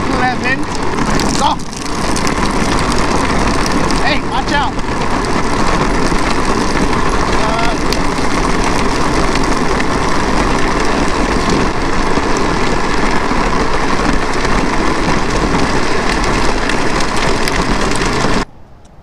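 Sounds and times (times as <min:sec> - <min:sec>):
wind over microphone: 0:00.0 - 0:18.5
bicycle tyres rolling on asphalt: 0:00.0 - 0:19.0.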